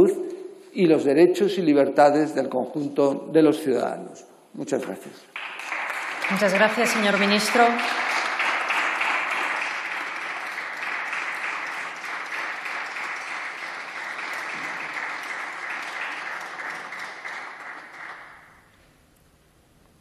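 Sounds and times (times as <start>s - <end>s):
people applauding: 5.4s - 18.7s.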